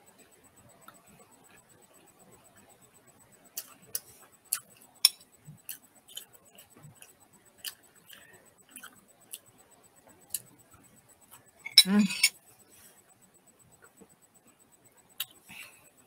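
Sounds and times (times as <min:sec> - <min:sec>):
wet chewing mouth clicks: 0:05.6 - 0:09.5.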